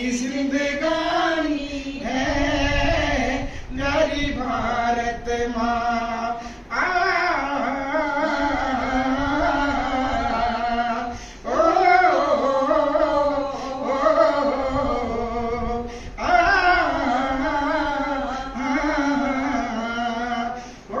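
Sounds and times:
women singing together: 0.0s - 21.0s.

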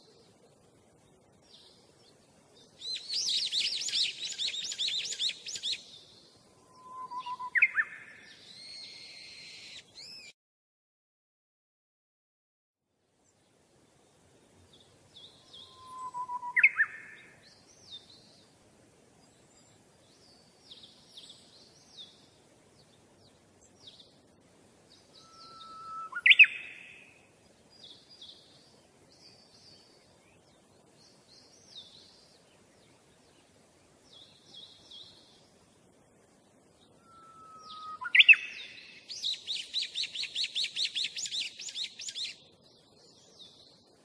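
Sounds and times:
loud whistled bird notes sweeping up: 6.5s - 10.3s, 15.2s - 18.0s, 25.1s - 27.1s, 36.9s - 42.4s
high bird chirps: 6.7s - 10.3s, 15.3s - 17.2s, 25.1s - 27.0s, 37.0s - 42.4s.

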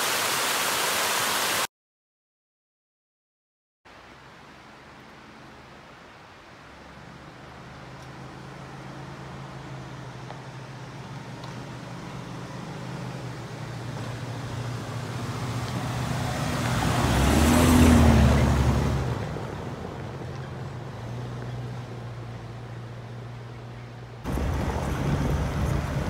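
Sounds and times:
vehicle driving past: 7.3s - 26.0s.

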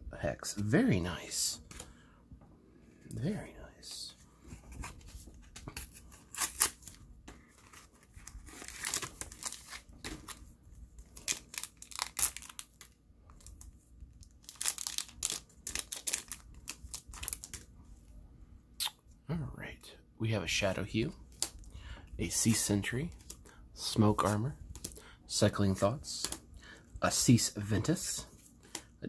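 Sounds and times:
plastic wrapper crinkling and tearing: 5.7s - 10.4s, 11.0s - 17.7s.

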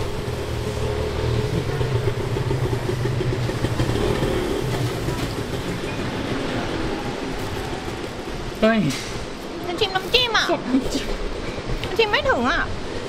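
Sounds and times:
vehicle engine humming: 0.0s - 10.3s.

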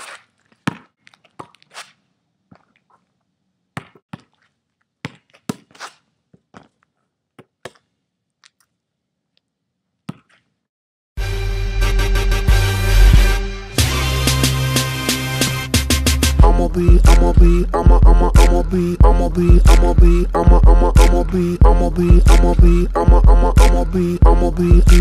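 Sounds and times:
basketball bouncing thuds: 3.8s - 4.3s
loud music with a beat: 11.2s - 25.0s.

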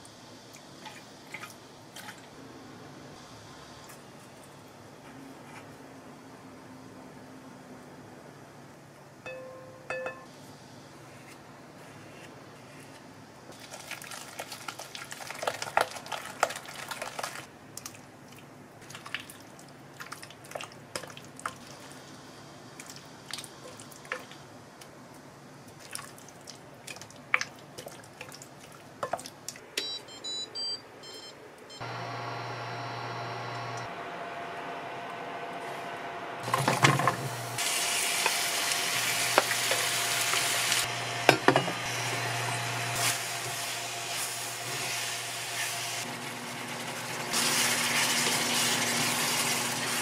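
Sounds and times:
electrical hum: 29.7s - 50.0s
short beeps: 29.8s - 31.9s.

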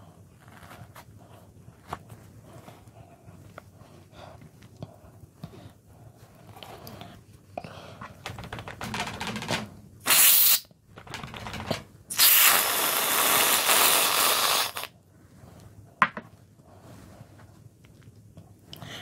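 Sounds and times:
aerosol can spraying hiss: 10.1s - 10.7s.

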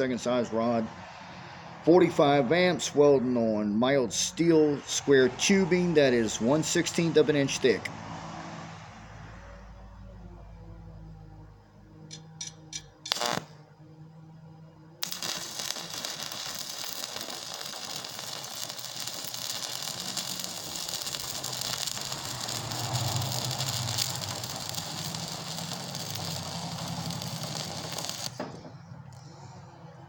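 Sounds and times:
welding arc crackling: 13.0s - 13.6s, 15.0s - 28.5s.

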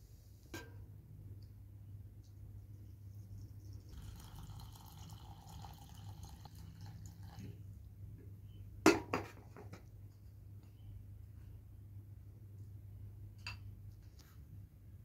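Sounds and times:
water pouring into metal bowl: 3.9s - 7.6s.

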